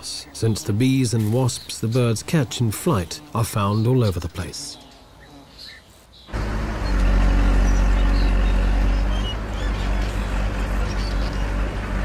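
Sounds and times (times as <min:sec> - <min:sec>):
excavator engine rumbling: 0:06.3 - 0:12.0.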